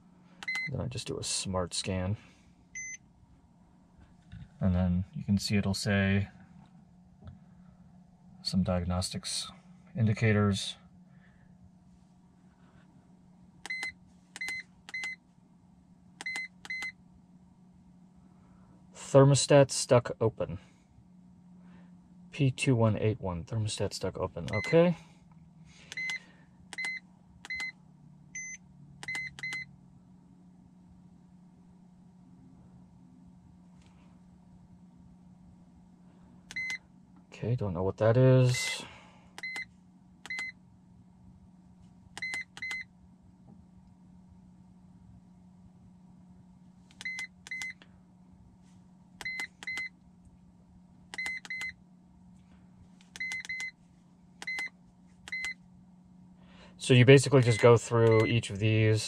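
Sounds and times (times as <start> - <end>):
faint low hum: 0.0 - 59.0
scan tool key beeps: 2.8 - 3.0, 13.7 - 15.2, 24.5 - 24.8, 28.4 - 29.7, 36.5 - 36.8, 40.3 - 40.6, 42.2 - 42.9, 49.2 - 49.9, 51.2 - 51.8, 53.2 - 53.7, 54.4 - 54.7, 55.3 - 55.6, 57.5 - 58.4.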